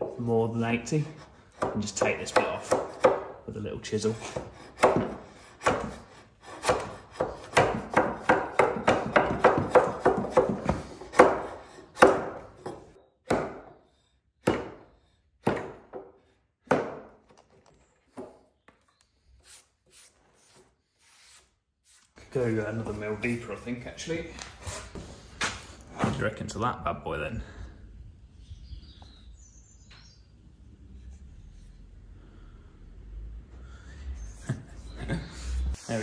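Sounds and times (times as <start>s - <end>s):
chisel strikes on wood: 1.5s - 3.4s, 4.3s - 13.8s, 14.4s - 17.4s.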